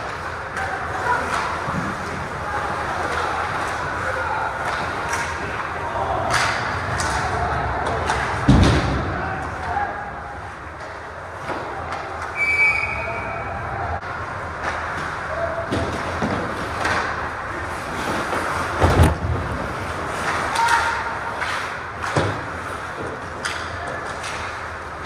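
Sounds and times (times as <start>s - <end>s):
players shouting: 2.4s - 10.8s, 20.3s - 21.4s.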